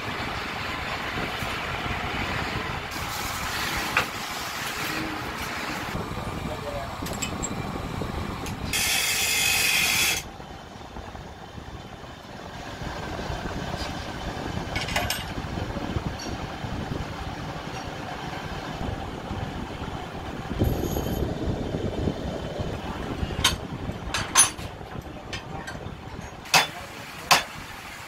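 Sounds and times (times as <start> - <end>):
low machine rumble: 0.0 - 9.2, 10.2 - 26.9
loud air hiss: 2.9 - 6.0, 8.7 - 10.3.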